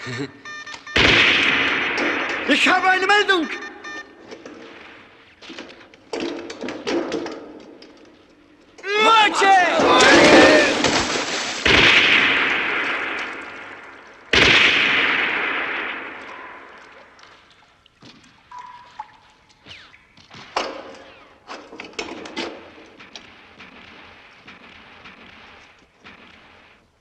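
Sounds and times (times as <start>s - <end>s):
loud gunshot echoing: 1.0s - 2.8s, 9.7s - 16.8s
rifle handling clicks and knocks: 5.4s - 8.8s.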